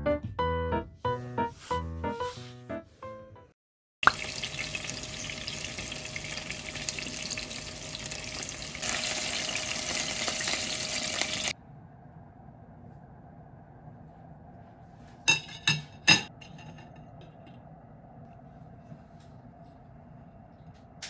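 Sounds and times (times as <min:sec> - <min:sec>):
chicken sizzling in oil: 0:04.0 - 0:11.6.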